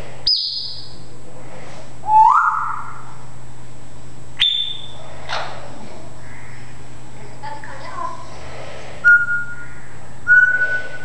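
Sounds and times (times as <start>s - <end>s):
parrot whistling: 0.3s - 1.0s, 2.0s - 3.2s, 4.4s - 5.0s, 9.0s - 9.7s, 10.3s - 11.0s.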